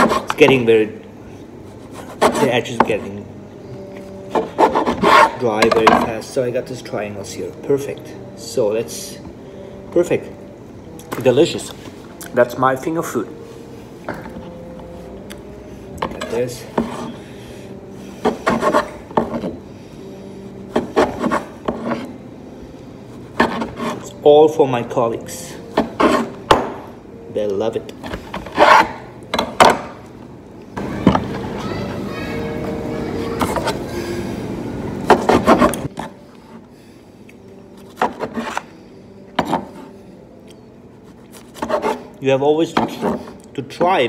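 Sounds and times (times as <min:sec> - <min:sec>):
knife sawing bread on a board: 0:04.4 - 0:05.4
knife sawing through bread: 0:04.4 - 0:05.4, 0:18.3 - 0:19.0, 0:41.5 - 0:42.1.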